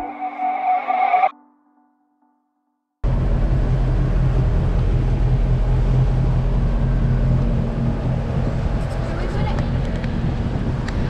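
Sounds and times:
motorboat engine droning: 0:03.0 - 0:11.0.

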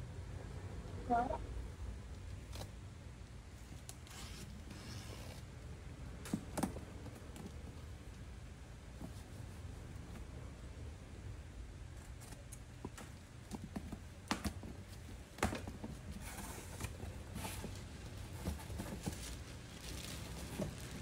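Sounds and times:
cardboard flaps rustling: 0:13.0 - 0:21.0.

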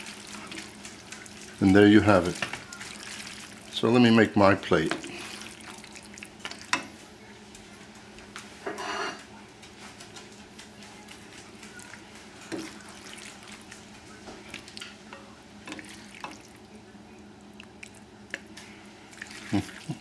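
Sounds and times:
wet food squishing: 0:00.0 - 0:04.1, 0:04.7 - 0:06.8, 0:09.6 - 0:15.0, 0:15.7 - 0:20.0.

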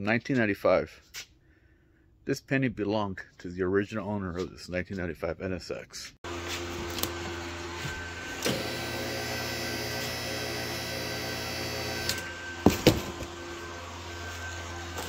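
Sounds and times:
hydraulic pump humming: 0:06.3 - 0:15.0.

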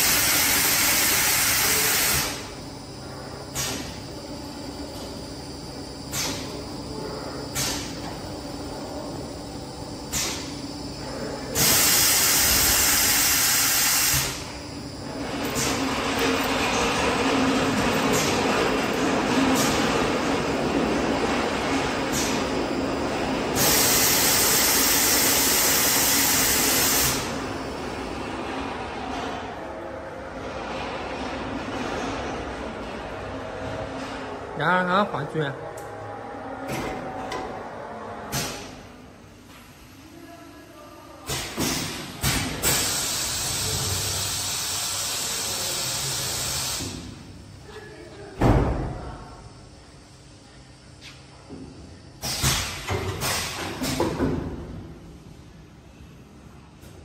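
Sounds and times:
machine humming: 0:00.0 - 0:29.1
pneumatic air hissing: 0:03.5 - 0:04.0, 0:06.1 - 0:06.6, 0:07.5 - 0:08.0, 0:10.1 - 0:10.6, 0:11.5 - 0:14.6, 0:23.6 - 0:27.4, 0:41.3 - 0:47.1, 0:52.2 - 0:54.2.

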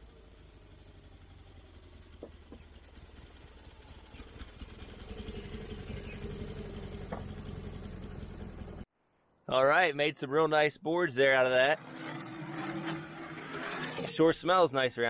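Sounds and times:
sawmill engine running: 0:00.0 - 0:08.8.

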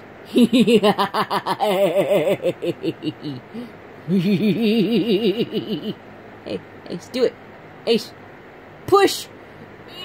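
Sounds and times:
woman laughing: 0:00.3 - 0:06.0.

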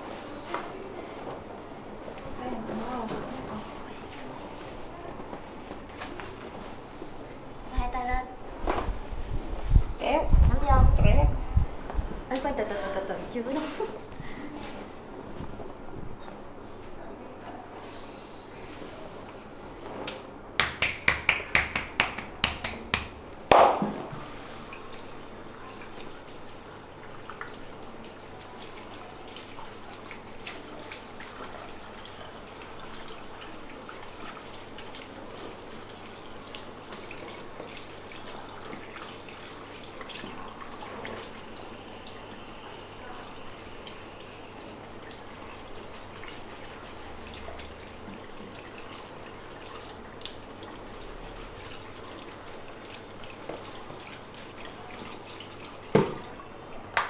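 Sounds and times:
hand slaps on back: 0:20.1 - 0:24.0
water spraying into basin: 0:20.6 - 0:57.0.

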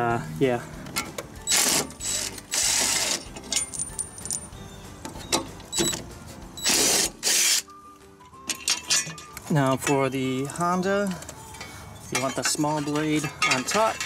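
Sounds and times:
background music: 0:00.0 - 0:14.0.

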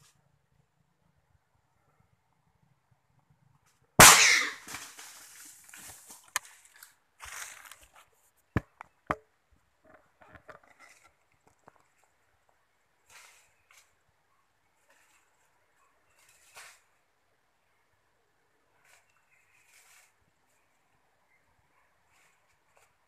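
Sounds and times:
loud rifle shot: 0:04.0 - 0:04.6
crashing in undergrowth: 0:04.0 - 0:07.9.

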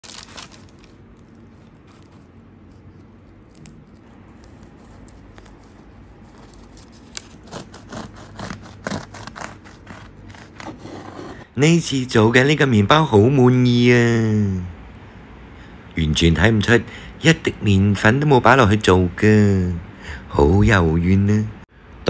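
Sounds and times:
bread knife sawing through loaf: 0:07.4 - 0:11.4.

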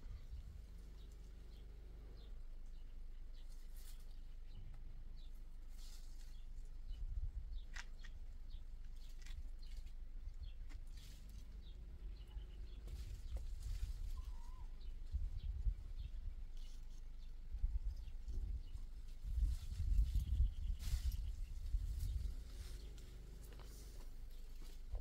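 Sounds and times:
wind rumbling on microphone: 0:00.0 - 0:01.0, 0:06.8 - 0:08.6, 0:11.6 - 0:24.0
faint bird chirp: 0:00.0 - 0:25.0
leaves and netting rustling: 0:03.4 - 0:04.6, 0:05.2 - 0:07.1, 0:07.7 - 0:15.3, 0:16.0 - 0:25.0.

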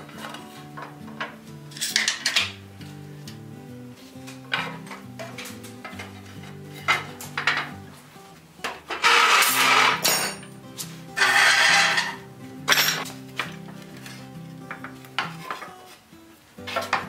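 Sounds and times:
wooden parts knocking and clattering: 0:00.0 - 0:02.6, 0:04.3 - 0:07.8, 0:12.7 - 0:15.8
background music: 0:00.0 - 0:17.0
loud scraping noises: 0:08.9 - 0:10.2, 0:10.8 - 0:12.2.

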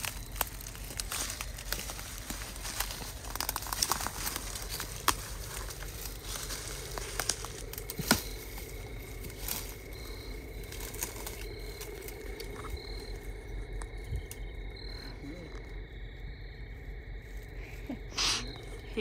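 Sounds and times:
footsteps crunching dry leaves: 0:00.0 - 0:14.3
twigs snapping: 0:00.0 - 0:14.9.

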